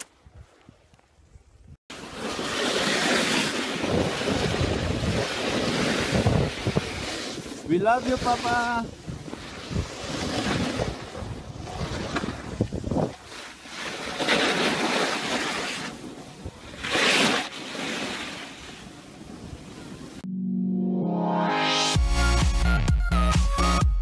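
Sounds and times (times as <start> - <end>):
wind buffeting microphone: 3.7 - 13.4.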